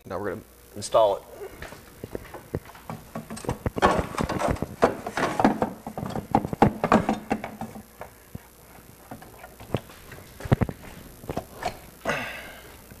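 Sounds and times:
plastic part knocking and clattering: 2.9 - 7.8.

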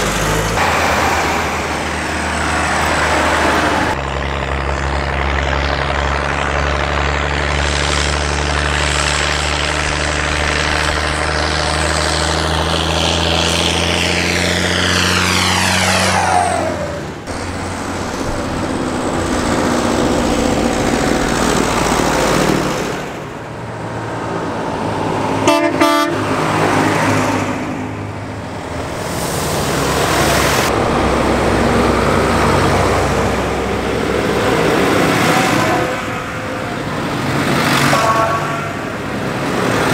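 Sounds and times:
tractors driving past: 0.0 - 39.9
short horn toot: 25.4 - 26.2, 37.8 - 38.8.

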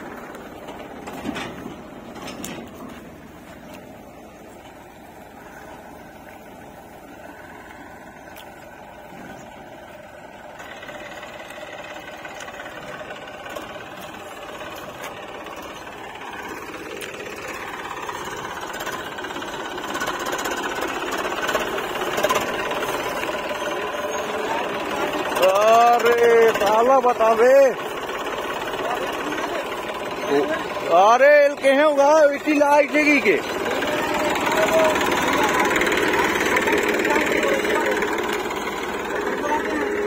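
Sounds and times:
tractor diesel engine knocking: 0.0 - 40.0.

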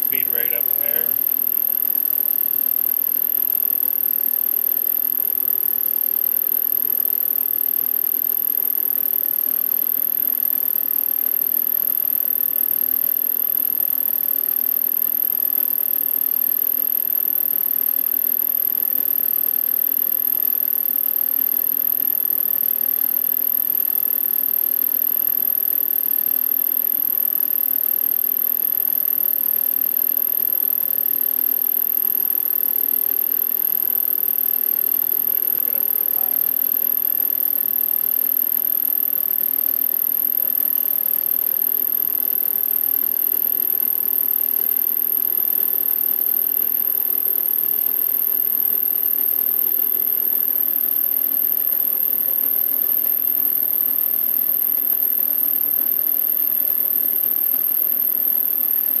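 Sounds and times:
high thin whine: 0.0 - 1.2.

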